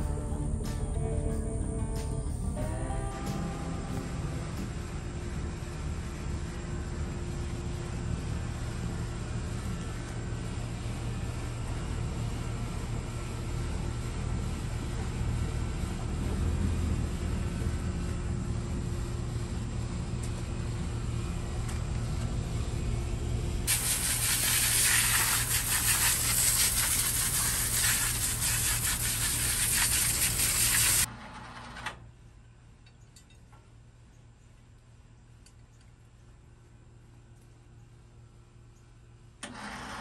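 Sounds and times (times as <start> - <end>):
steady low hum: 0.0 - 31.1
hose spray hissing: 23.7 - 31.1.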